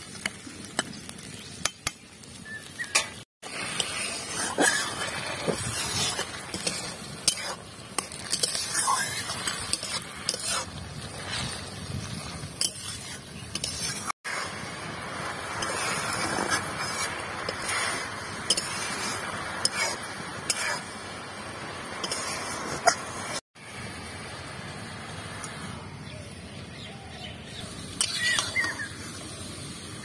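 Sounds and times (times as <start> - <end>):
fruit sizzling in hot oil: 0.0 - 25.8, 27.5 - 30.0
metal spatula scraping pan: 2.9 - 11.7, 12.6 - 14.6, 15.5 - 21.0, 22.0 - 23.1, 28.0 - 28.8.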